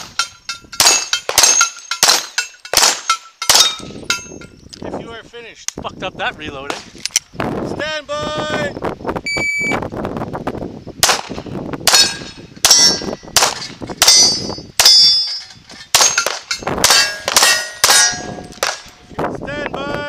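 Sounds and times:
steel plate clang: 0.0s - 4.6s, 11.9s - 19.1s
pistol shots: 0.8s - 3.9s, 11.0s - 15.1s, 16.0s - 19.0s
shot timer beep: 9.3s - 9.8s.

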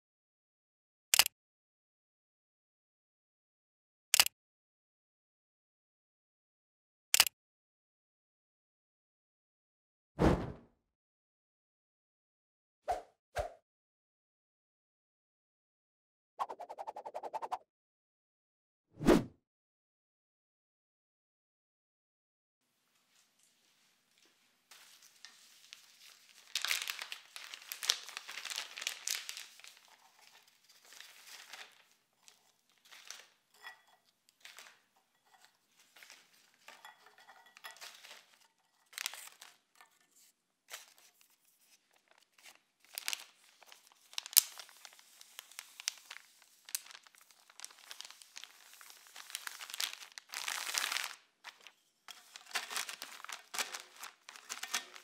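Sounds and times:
sharp clicks: 4.1s - 4.3s
plastic bag crinkling: 23.2s - 40.0s, 40.7s - 55.0s.

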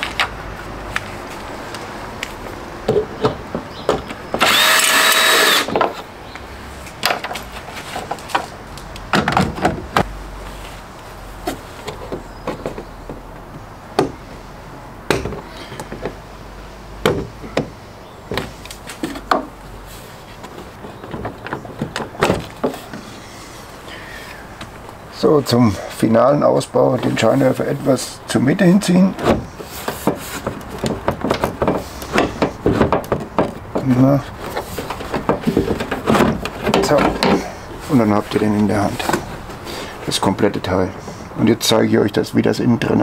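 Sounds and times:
cordless drill running: 4.4s - 5.7s
clicks and knocks of plastic: 20.4s - 23.0s, 29.2s - 37.6s.

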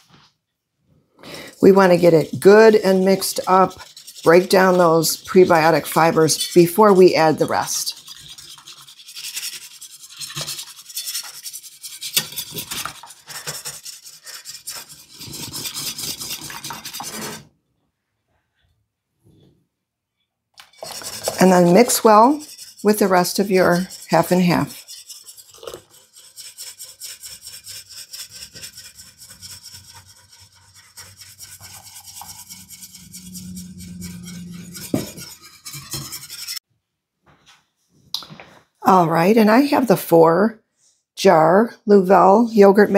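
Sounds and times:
whisk scraping glass bowl: 1.2s - 17.4s, 20.6s - 36.6s.

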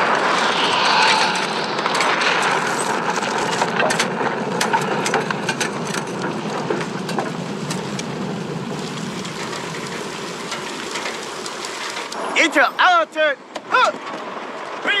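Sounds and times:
sharp crackles: 0.0s - 4.9s, 6.0s - 12.6s
debris and rain pattering: 2.0s - 13.3s.

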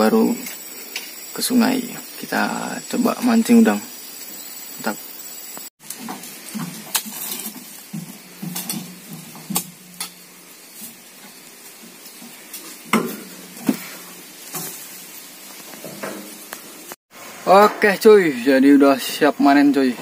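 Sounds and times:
fruit bunches knocking and thudding: 5.9s - 10.2s, 12.3s - 14.0s.

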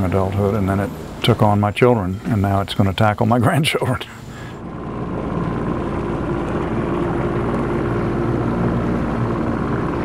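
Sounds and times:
motorboat engine running: 4.6s - 10.0s.

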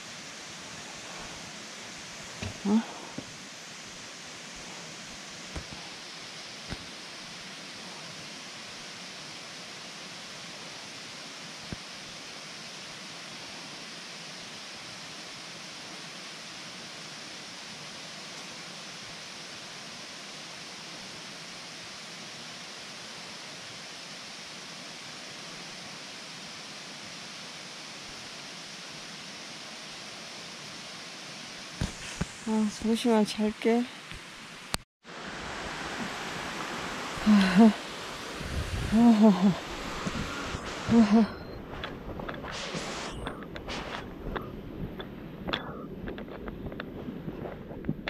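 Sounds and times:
steady outdoor hiss: 0.0s - 48.0s.

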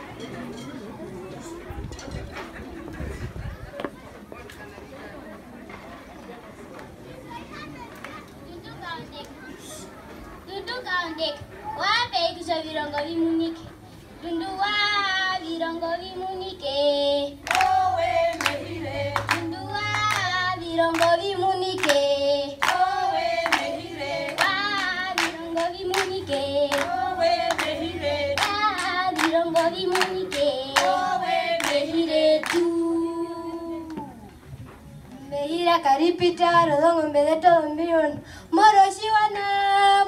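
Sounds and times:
children singing in unison: 14.6s - 33.7s
rhythmic handclaps: 17.4s - 32.9s.

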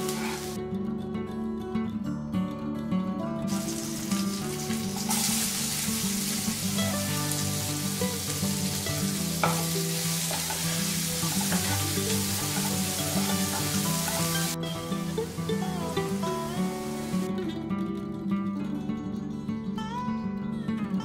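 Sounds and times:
onion sizzling in hot oil: 0.0s - 0.6s, 3.5s - 17.3s.

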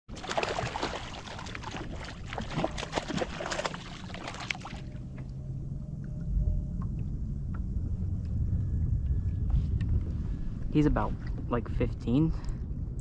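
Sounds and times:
fish splashing in water: 0.1s - 5.0s.

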